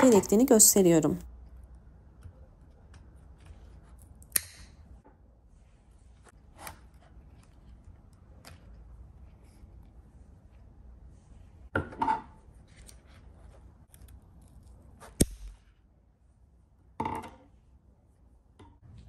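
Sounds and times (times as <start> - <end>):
scissors snipping stem: 4.2 - 4.7.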